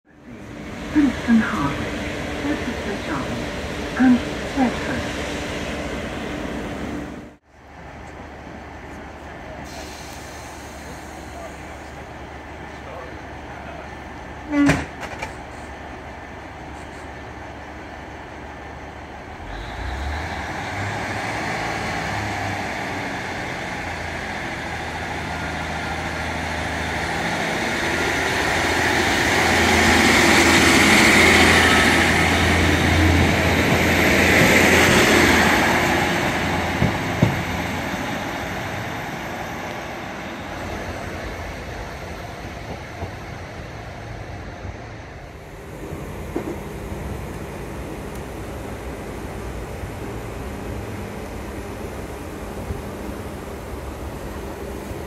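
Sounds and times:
train diesel engines humming: 0.1 - 55.0.

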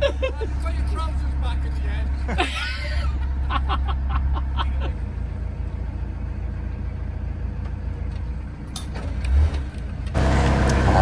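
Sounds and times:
boat engine low rumble: 0.0 - 8.8.

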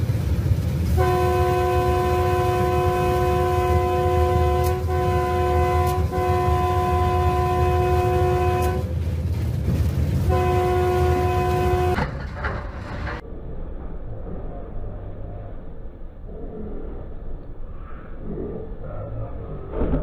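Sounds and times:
locomotive rumble: 0.0 - 20.0
locomotive air horn blasts: 0.9 - 9.0, 10.2 - 12.1.

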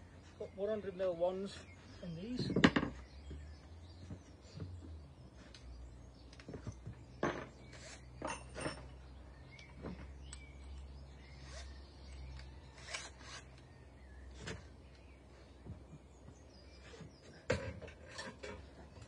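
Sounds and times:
faint bird chirps: 0.1 - 17.5
clicks and knocks of timber work: 2.4 - 5.7, 6.3 - 10.4, 15.6 - 19.0.

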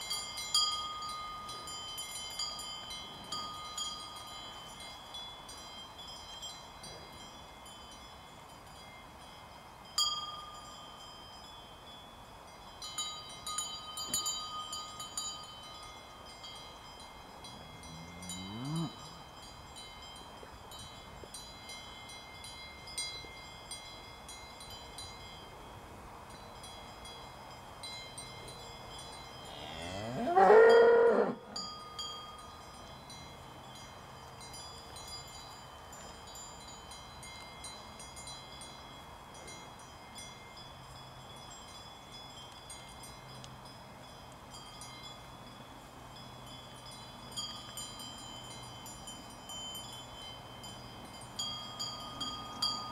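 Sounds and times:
cowbells clanking: 0.0 - 25.5, 26.3 - 52.9
cow mooing: 17.8 - 19.0, 29.5 - 31.4.

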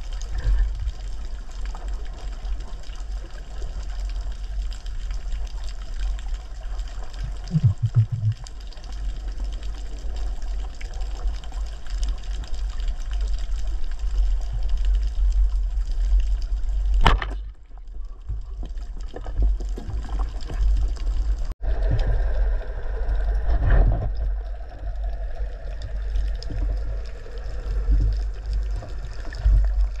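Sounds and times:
underwater rumble and rush: 0.0 - 30.0.

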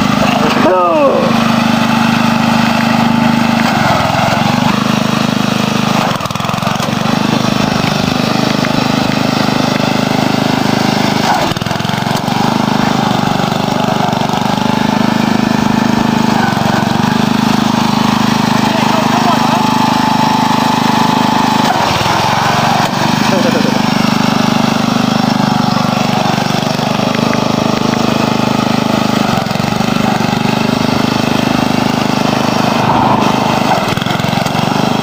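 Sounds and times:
riding lawn tractor engine running: 0.0 - 35.0.

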